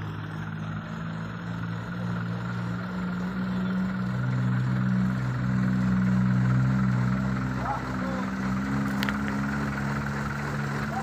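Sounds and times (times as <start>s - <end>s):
diesel truck engine: 0.0s - 11.0s.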